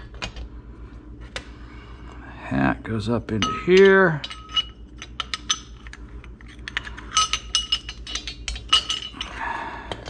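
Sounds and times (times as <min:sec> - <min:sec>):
metal parts clinking together: 0:03.4 - 0:10.0.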